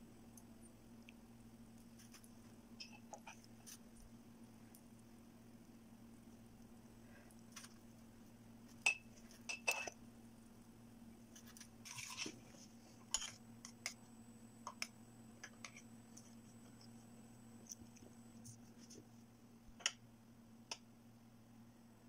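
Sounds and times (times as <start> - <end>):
faint low hum: 0.0 - 22.0
kitchenware clinking: 8.8 - 10.0, 13.1 - 13.4.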